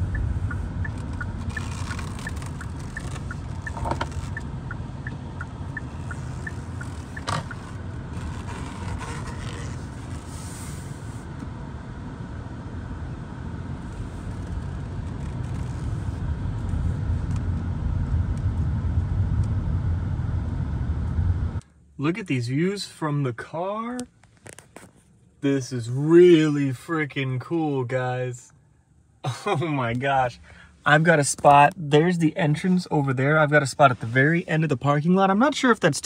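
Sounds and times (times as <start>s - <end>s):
turn signal ticking: 0.0s - 8.6s
car engine and tyre rumble: 0.0s - 36.0s.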